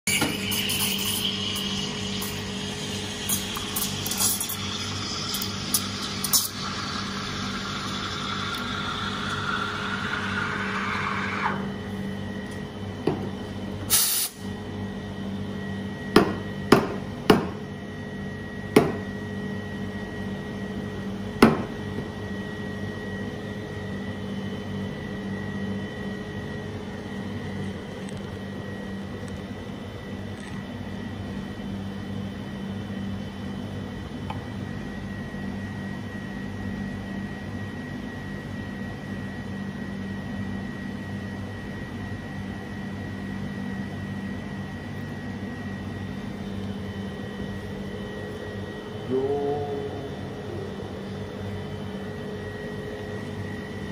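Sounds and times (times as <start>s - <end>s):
electric coffee grinder grinding: 0.1s - 11.7s
machine hum: 0.1s - 13.8s, 45.3s - 53.9s
faint high tone: 49.0s - 50.9s.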